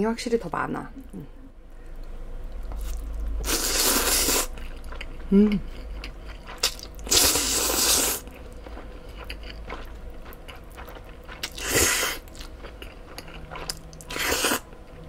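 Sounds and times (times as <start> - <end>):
soft chewing: 1.0 - 15.0
noodles being slurped: 2.8 - 4.6, 6.5 - 8.3, 13.5 - 14.6.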